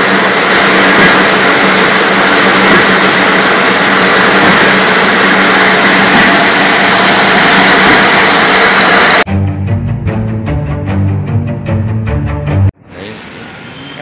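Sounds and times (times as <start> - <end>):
veneer lathe machinery droning: 0.0 - 9.3.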